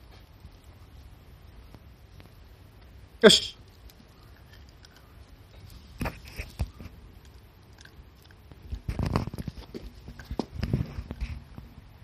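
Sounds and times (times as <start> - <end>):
dog crunching chew stick: 3.6 - 11.2.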